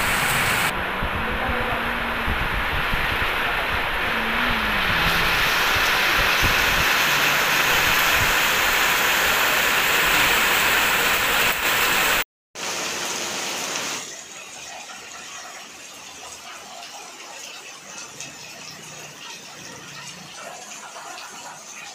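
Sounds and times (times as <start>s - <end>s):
low rumble: 0.0s - 9.0s
heavy rain on paved road: 0.0s - 14.7s.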